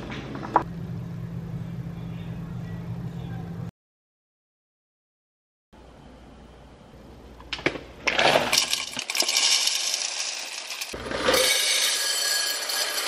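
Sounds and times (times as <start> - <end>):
coffee beans rattling into glass jar: 8.5 - 13.0.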